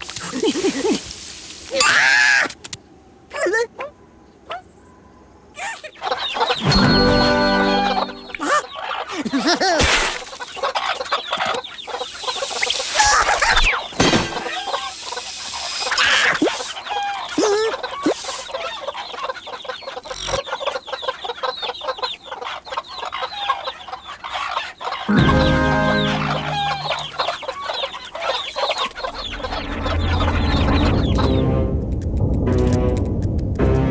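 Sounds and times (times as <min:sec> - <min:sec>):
cartoon hens clucking: 0:14.4 - 0:30.1.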